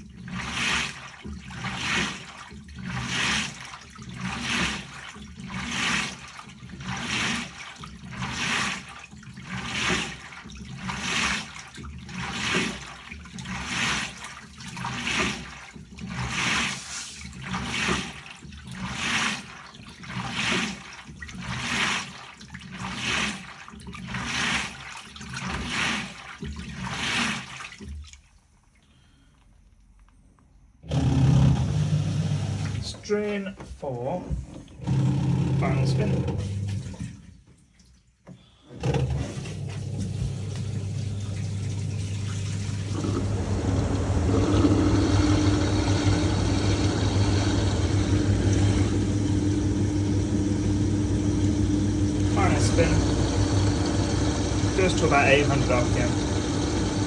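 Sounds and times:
washing machine agitating water: 0.0 - 57.0
loud low hum: 42.9 - 57.0.

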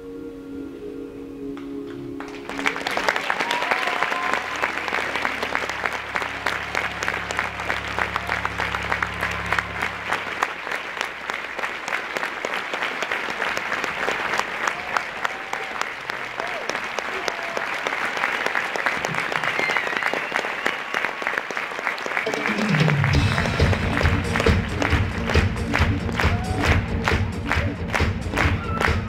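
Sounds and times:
audience applause: 2.2 - 29.0
band holding a chord: 4.4 - 10.9
low held bass note: 4.5 - 10.7.

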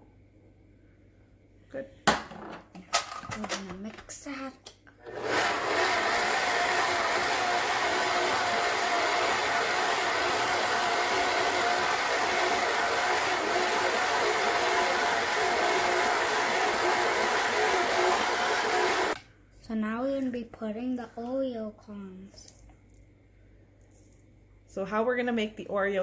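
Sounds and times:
stand mixer motor whine: 5.1 - 19.2.

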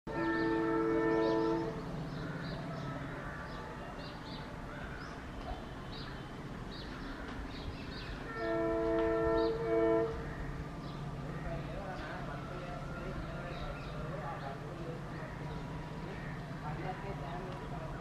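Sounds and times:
locomotive horn blasts: 0.1 - 1.8, 8.3 - 10.2
faint birds chirping: 0.1 - 18.0.

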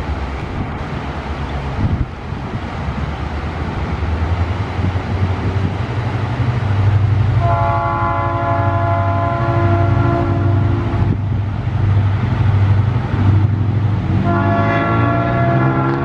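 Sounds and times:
diesel locomotive engine drone: 0.0 - 16.0
train horn chord: 7.4 - 11.1, 14.2 - 16.0.

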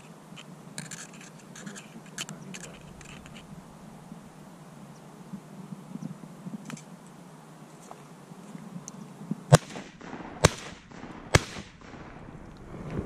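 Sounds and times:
shotgun shots with echo: 9.5 - 12.4.

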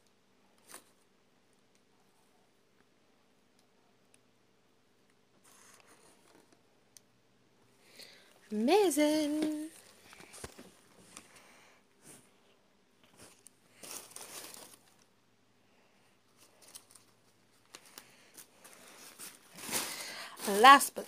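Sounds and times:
wrapping crinkling and rustling: 8.4 - 11.4, 13.0 - 15.2, 16.3 - 21.0.

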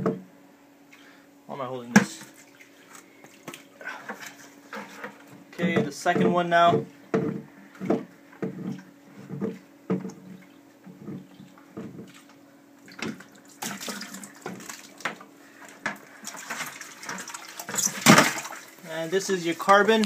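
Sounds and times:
plastic filter housing knocks and creaks: 4.7 - 12.1
water pouring into plastic bucket: 13.3 - 15.0.

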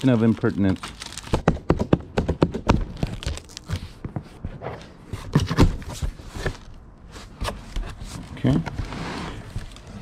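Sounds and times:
papers and bags rustling: 0.0 - 1.5
knocks on cardboard box: 1.3 - 3.0.

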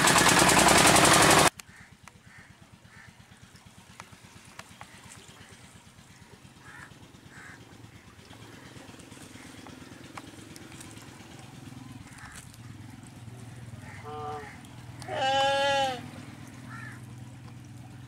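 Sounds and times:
diesel engine running: 0.0 - 18.0
crow cawing: 1.7 - 3.2, 6.1 - 8.0, 12.0 - 12.8, 13.5 - 16.0, 16.6 - 17.1.

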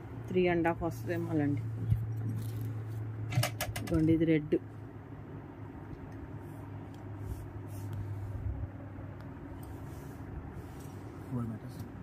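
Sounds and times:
steady low hum: 0.0 - 12.0
fabric rustling: 1.1 - 3.1, 9.4 - 11.8.

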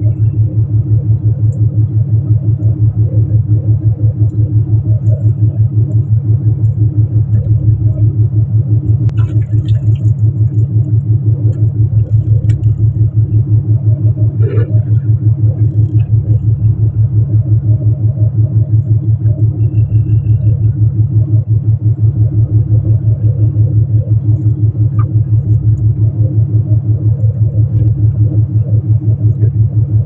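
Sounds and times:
boat engine throbbing: 0.0 - 30.0.

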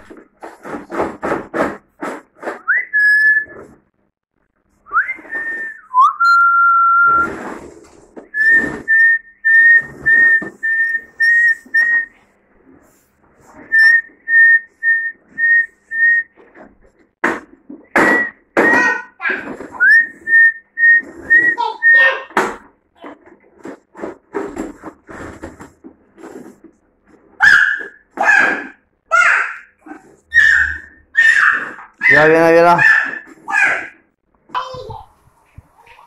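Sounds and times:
person whistling: 2.6 - 3.6, 4.9 - 7.4, 8.3 - 12.2, 13.7 - 16.3, 19.8 - 22.1.

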